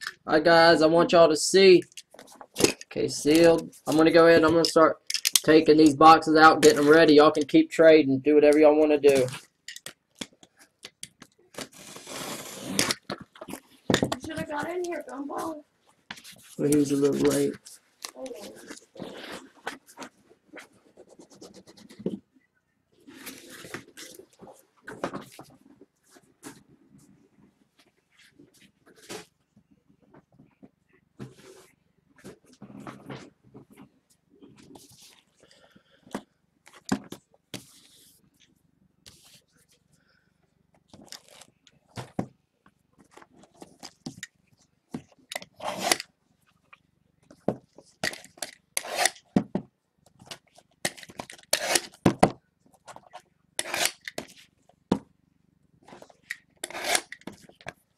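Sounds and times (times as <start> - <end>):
cardboard boxes scraping and rustling: 11.6 - 12.9.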